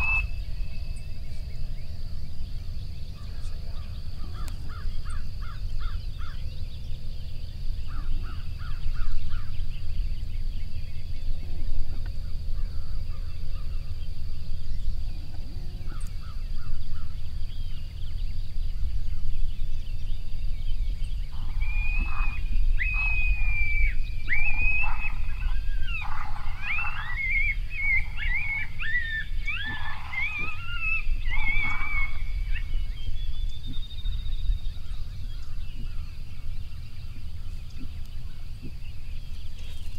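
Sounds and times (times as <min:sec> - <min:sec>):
coyotes yipping and howling: 0:00.0 - 0:06.8, 0:20.7 - 0:39.9
wind rumbling on microphone: 0:00.0 - 0:39.9.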